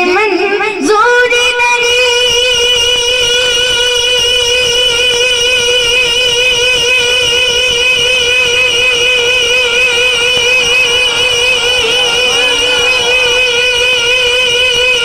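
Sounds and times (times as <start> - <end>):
boy singing a sustained note: 8.9 - 15.0.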